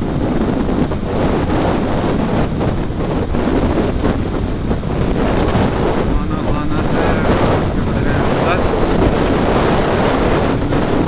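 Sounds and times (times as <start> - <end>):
road noise: 0.0 - 11.0
wind buffeting microphone: 0.0 - 11.0.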